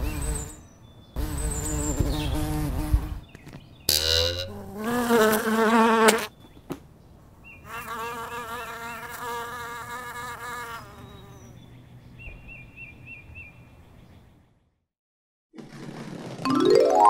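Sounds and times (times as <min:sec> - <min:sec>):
flying insect buzzing: 0:01.2 - 0:03.2, 0:03.9 - 0:06.3, 0:07.7 - 0:11.3.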